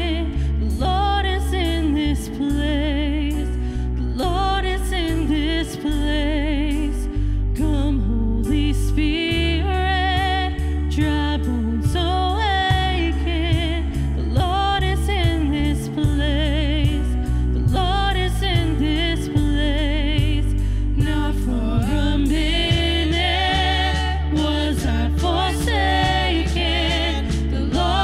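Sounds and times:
deep bass line: 0.0 - 28.0
piano: 0.0 - 28.0
drum kit: 11.9 - 28.0
singers holding notes: 21.6 - 28.0.

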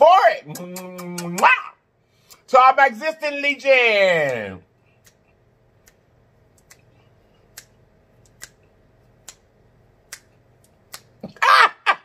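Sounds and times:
faint low room hum: 0.0 - 12.0
fingers snapping: 5.0 - 6.9, 7.5 - 11.3.

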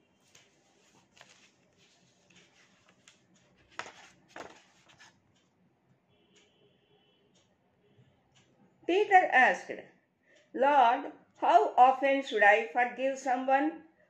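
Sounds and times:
paper rustling: 0.2 - 5.2.

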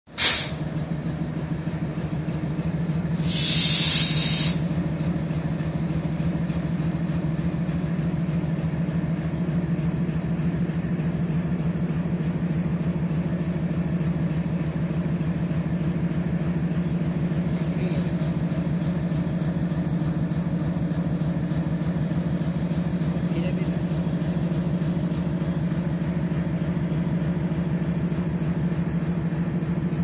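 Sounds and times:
diesel locomotive engine idling: 0.1 - 30.0
air hiss: 0.2 - 0.6, 3.2 - 4.7.

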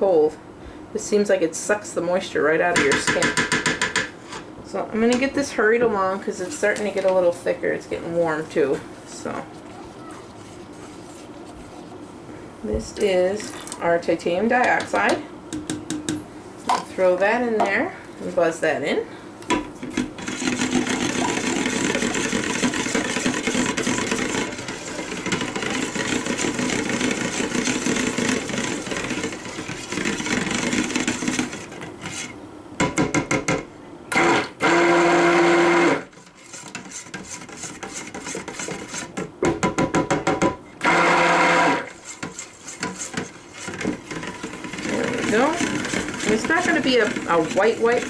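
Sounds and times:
stick blender whining: 20.2 - 32.4, 34.1 - 39.2, 40.8 - 48.0.

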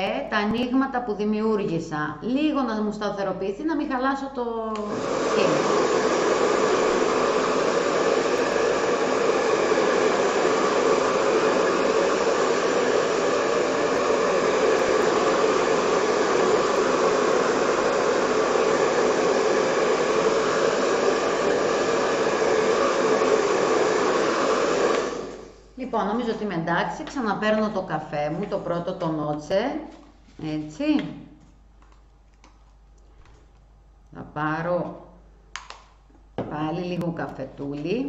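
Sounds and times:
hot-air dryer blowing: 4.7 - 29.2.

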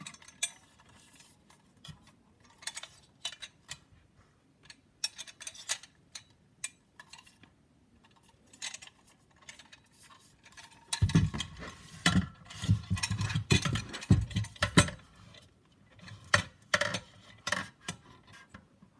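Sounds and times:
metal clinks and knocks: 10.5 - 15.1
knocking and rattling: 10.8 - 15.0.

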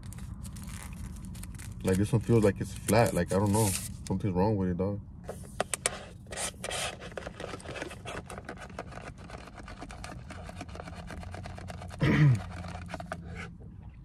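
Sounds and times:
straw squeaking in lid: 6.2 - 13.6.

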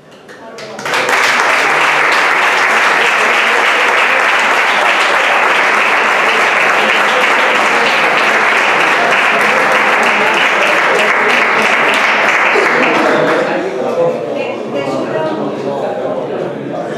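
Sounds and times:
audience applauding: 0.3 - 13.7.

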